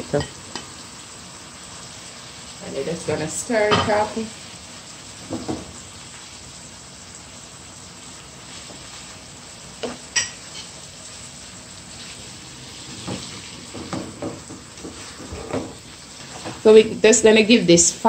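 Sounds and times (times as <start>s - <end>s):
food sizzling in a pot: 0.0s - 18.0s
stirring knocks and scrapes: 12.8s - 16.7s.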